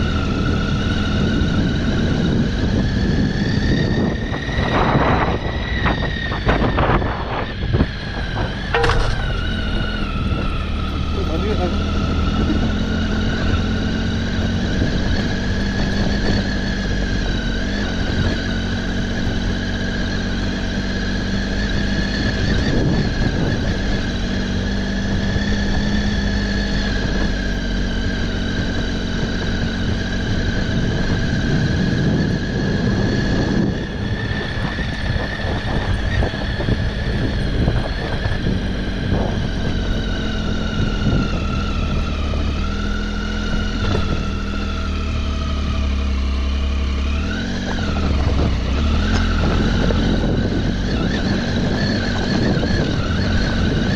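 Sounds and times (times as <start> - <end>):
motorcycle engine running: 0.0 - 53.9
low rumble: 1.8 - 16.0.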